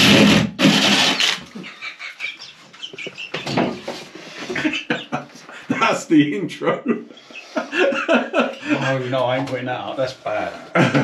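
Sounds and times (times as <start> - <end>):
power drill cutting ceiling: 0.0 - 1.5.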